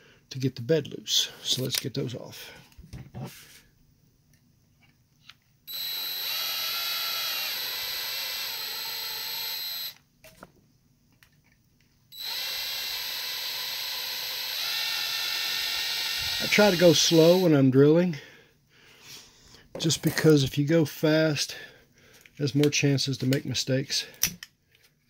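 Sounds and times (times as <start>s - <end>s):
power drill running: 5.7s - 10.0s, 12.1s - 17.5s.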